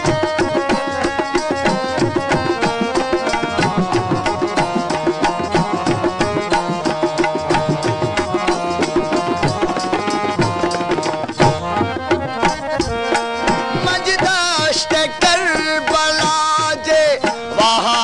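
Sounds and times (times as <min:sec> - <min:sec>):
hand drums: 0:00.0 - 0:18.0
harmonium melody: 0:00.0 - 0:18.0
man singing: 0:12.7 - 0:18.0.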